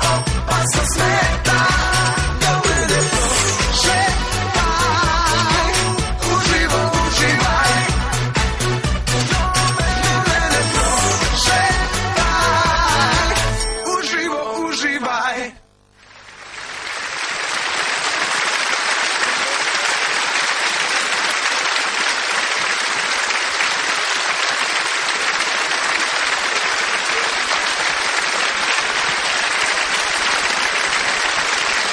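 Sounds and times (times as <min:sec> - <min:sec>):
audience applauding: 0:16.1 - 0:31.9.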